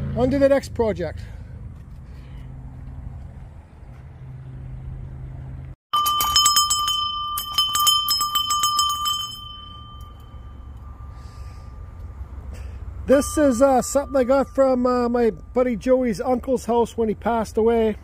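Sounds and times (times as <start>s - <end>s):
iron bell clanging: 6.0s - 15.8s
low steady hum: 6.3s - 18.0s.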